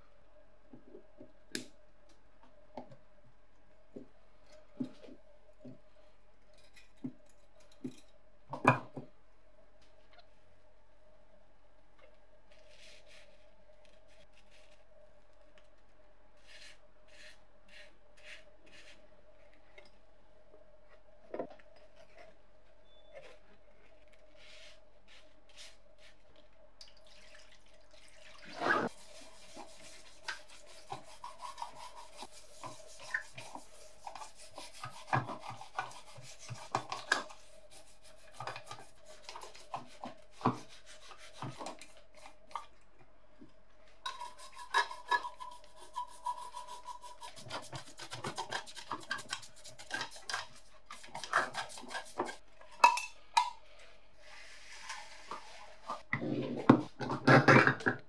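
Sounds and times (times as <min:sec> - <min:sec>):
faint steady hum: 0:00.0 - 0:48.0
brush scrubbing metal: 0:28.8 - 0:42.4, 0:44.1 - 0:52.4.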